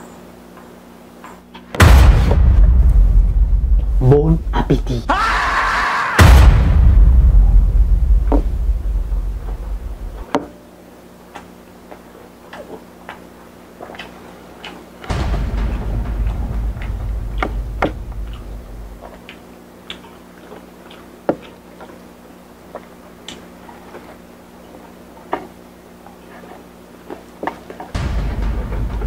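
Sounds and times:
low rumble: 1.8 - 10.2, 15.1 - 19.2, 28.0 - 29.0
crunchy chewing: 11.3 - 17.5, 18.1 - 28.0.

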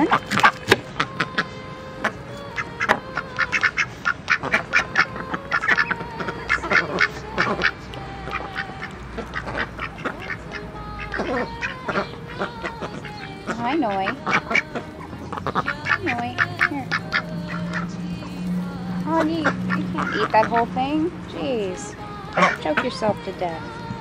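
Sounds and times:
duck bills clacking on wood: 0.0 - 1.4
ducks quacking: 0.0 - 24.0.

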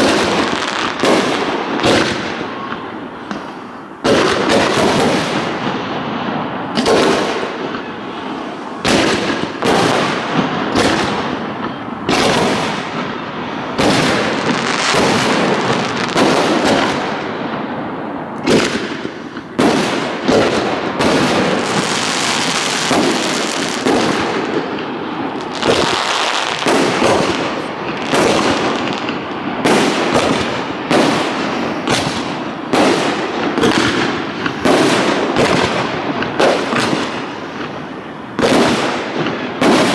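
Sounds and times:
crackling rumble of fireworks: 0.0 - 39.9
firework shells bursting: 18.3 - 37.8.

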